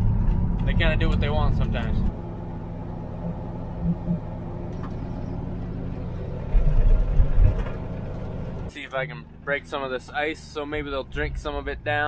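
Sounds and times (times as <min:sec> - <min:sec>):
low rumbling: 0:00.0 - 0:09.4
vehicle engine hum: 0:00.0 - 0:12.0.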